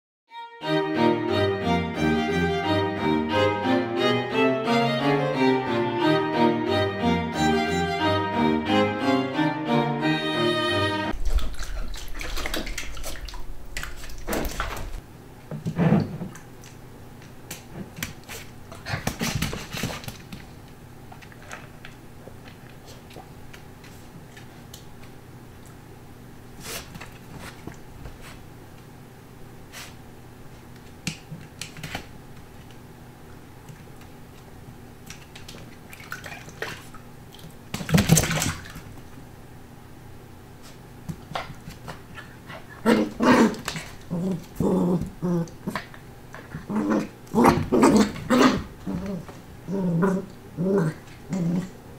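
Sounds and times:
low room hum: 0.6 - 51.9
puppy splashing in water bowl: 11.2 - 15.0, 35.0 - 39.0.

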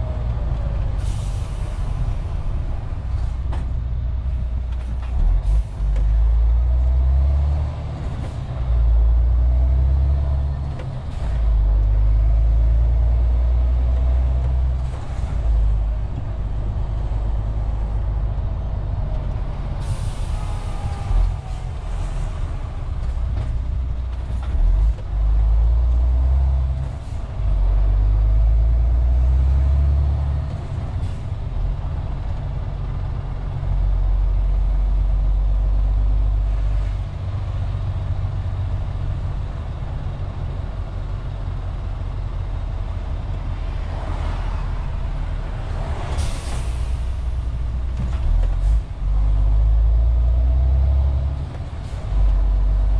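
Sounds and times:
truck diesel engine drone: 0.0 - 52.9
air brake hiss: 19.8 - 22.3, 46.0 - 47.2.

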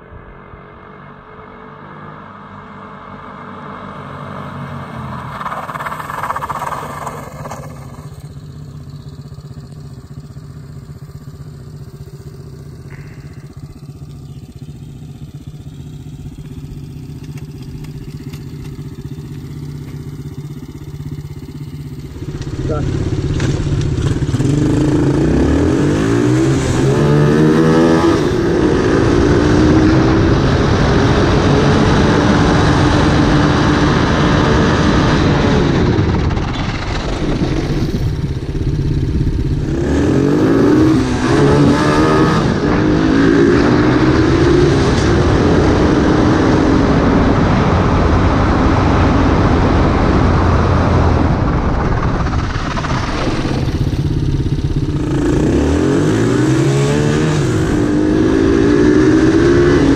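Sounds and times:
quad bike engine revving: 3.5 - 59.9.

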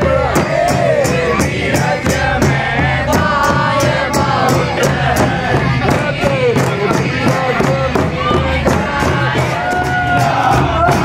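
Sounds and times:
drum beating steady rhythm: 0.0 - 11.0.

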